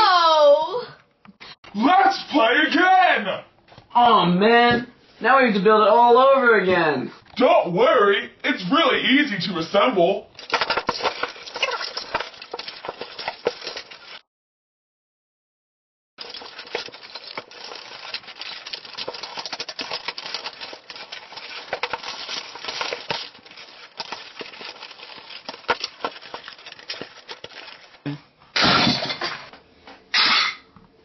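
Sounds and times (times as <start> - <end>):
plastic blocks clattering: 10.4 - 14.2, 16.2 - 29.4.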